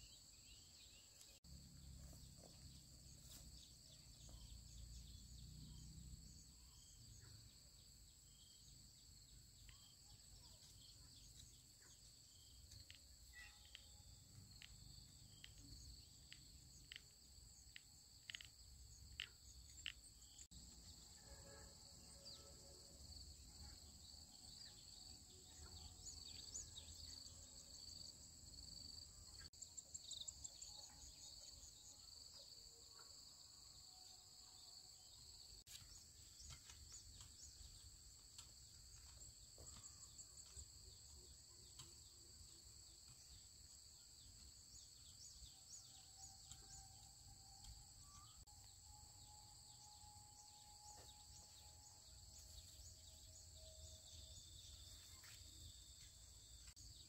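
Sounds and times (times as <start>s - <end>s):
insect chirring: 10.8s - 32.3s.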